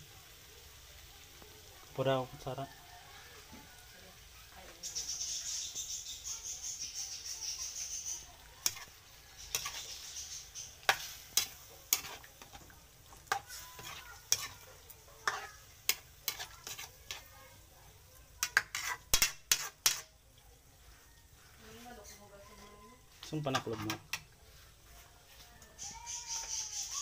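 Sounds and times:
sauce sizzling in a pan: 0:00.0 - 0:27.0
spatula scraping and knocking pan: 0:08.4 - 0:17.4, 0:18.3 - 0:20.1, 0:22.6 - 0:25.1.

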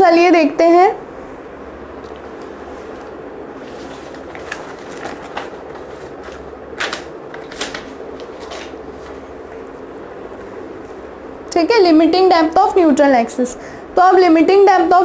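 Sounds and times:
steady background hum: 0:00.0 - 0:15.0
handling rustles and clicks: 0:02.0 - 0:09.6.

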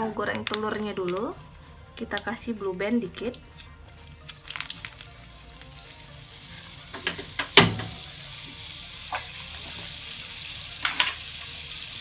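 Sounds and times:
margarine sizzling in a wok: 0:03.6 - 0:12.0.

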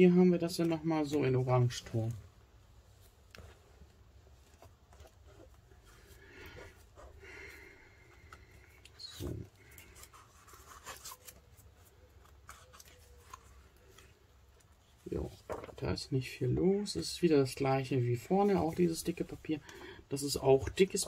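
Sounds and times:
paper pages rustling: 0:02.9 - 0:07.2, 0:08.1 - 0:16.0.

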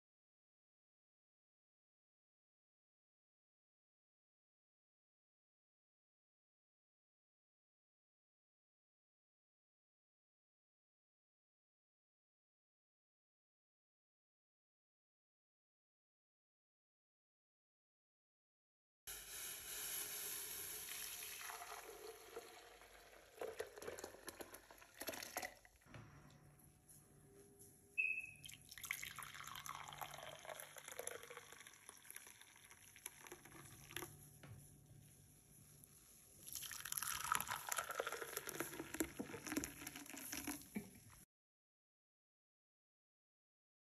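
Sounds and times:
hot milk pouring: 0:19.1 - 0:25.8, 0:28.4 - 0:34.2, 0:36.4 - 0:41.0.

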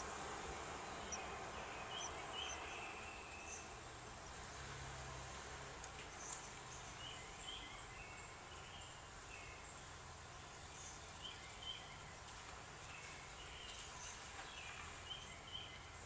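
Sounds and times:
nestlings chirping: 0:00.0 - 0:03.8
low hum and hiss: 0:00.0 - 0:16.0.

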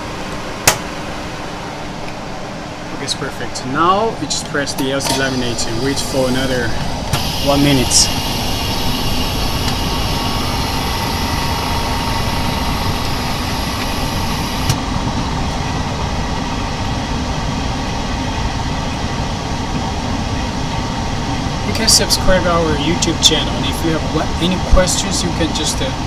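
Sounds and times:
laminating machine running: 0:04.9 - 0:15.0.

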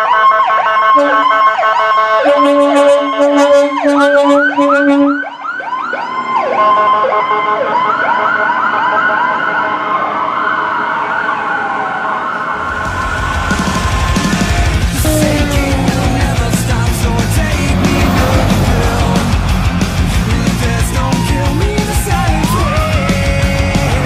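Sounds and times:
fire truck sirens: 0:00.0 - 0:24.0
loud rock music: 0:12.7 - 0:24.0
steady low tone: 0:14.8 - 0:21.6.

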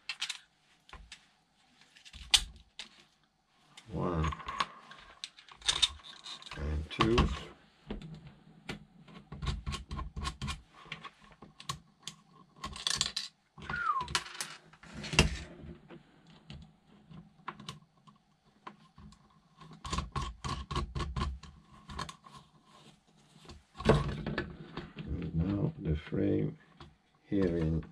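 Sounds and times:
plastic parts clicking and tapping: 0:00.0 - 0:01.2, 0:08.1 - 0:14.6.

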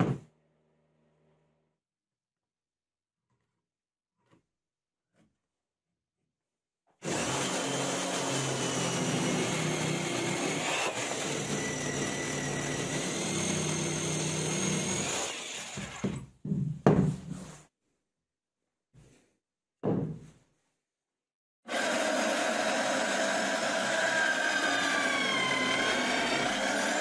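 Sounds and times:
electric saw cutting wood: 0:07.0 - 0:16.2, 0:21.7 - 0:27.0
wood knocking: 0:16.0 - 0:17.4, 0:19.8 - 0:20.3.

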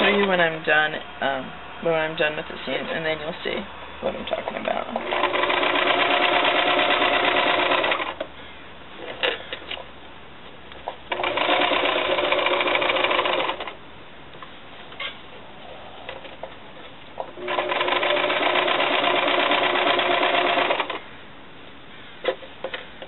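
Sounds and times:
sewing machine stitching: 0:05.0 - 0:08.2, 0:11.1 - 0:13.8, 0:17.4 - 0:21.0.

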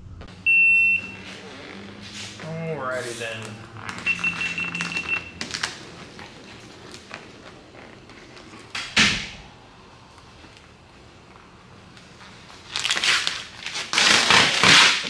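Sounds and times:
plastic film crinkling: 0:04.7 - 0:08.4, 0:12.2 - 0:15.0.

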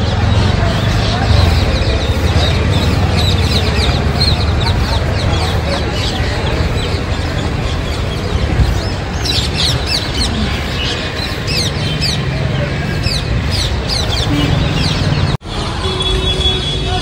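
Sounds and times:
birds chirping: 0:00.0 - 0:16.1
steady background din: 0:00.0 - 0:17.0.

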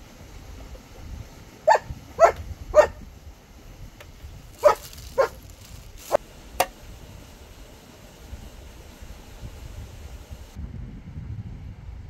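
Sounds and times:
dog barking: 0:01.6 - 0:03.0, 0:04.6 - 0:05.4.

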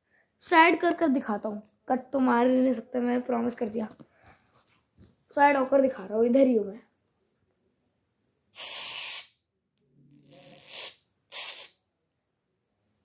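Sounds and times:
spray can hissing: 0:08.6 - 0:09.4, 0:10.6 - 0:11.8.

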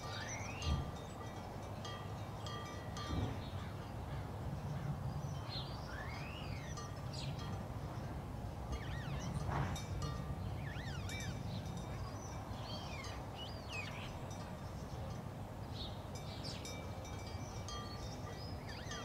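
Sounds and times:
chime-like ringing tones: 0:08.7 - 0:14.5, 0:16.2 - 0:19.0
bird-like chirping calls: 0:08.8 - 0:09.4, 0:10.6 - 0:14.2.

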